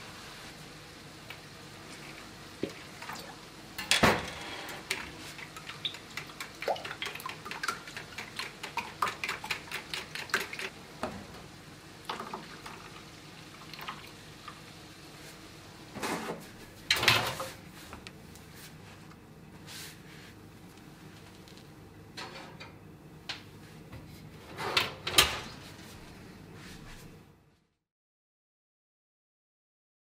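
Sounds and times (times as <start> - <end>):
whisk clicking against bowl: 4.9 - 10.7.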